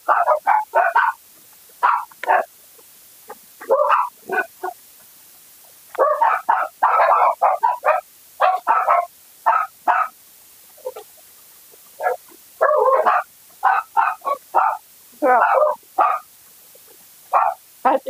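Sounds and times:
dog barking: 0.0 - 1.2, 1.8 - 2.5, 3.6 - 4.8, 6.0 - 10.2, 12.0 - 16.3, 17.3 - 17.6.

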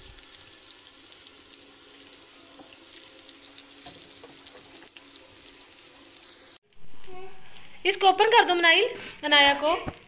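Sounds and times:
food sizzling in oil: 0.0 - 6.6.

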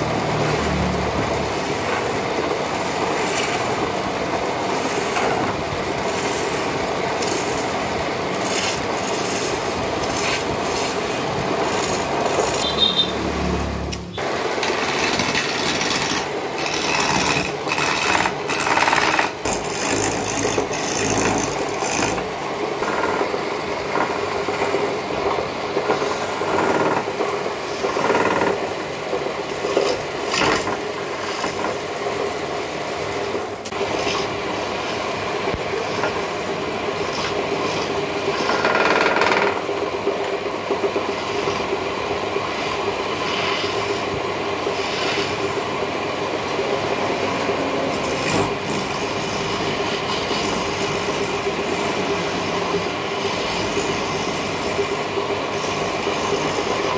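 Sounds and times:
chisel scraping spinning wood: 2.9 - 3.9, 4.6 - 12.8, 14.6 - 23.3, 29.6 - 31.8, 35.6 - 36.3, 37.0 - 39.6, 44.7 - 45.4
wood lathe humming: 8.4 - 12.7, 14.3 - 23.2.

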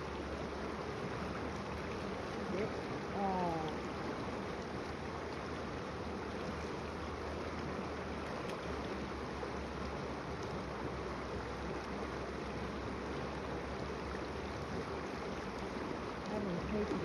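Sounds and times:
creek water rushing over rocks: 0.0 - 17.0.

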